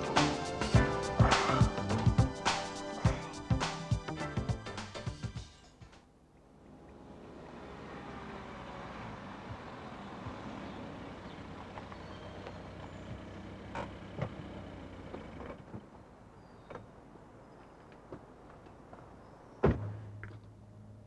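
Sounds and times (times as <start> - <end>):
car engine running: 6.7 - 16.2
car door slam: 19.6 - 20.0.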